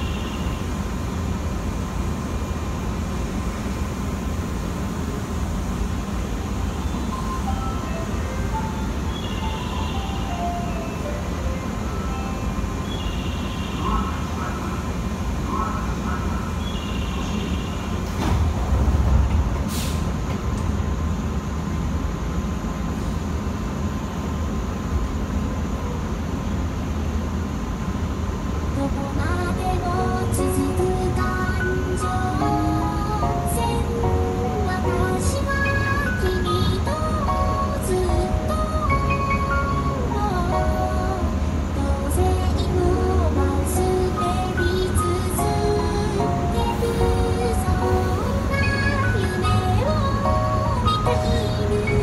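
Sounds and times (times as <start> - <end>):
train car hum and rumble: 0.0 - 52.0
train doors sliding shut: 16.2 - 24.2
short hiss of air: 19.6 - 20.3.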